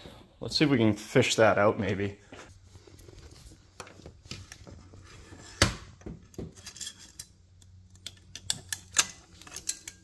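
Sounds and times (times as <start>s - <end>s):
metal picks clinking and scraping: 6.5s - 10.0s.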